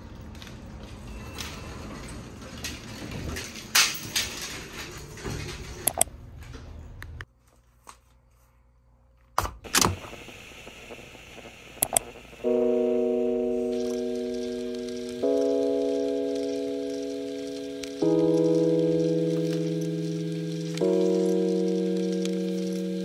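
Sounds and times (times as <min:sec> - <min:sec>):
chime-like music notes: 0:12.4 - 0:23.0.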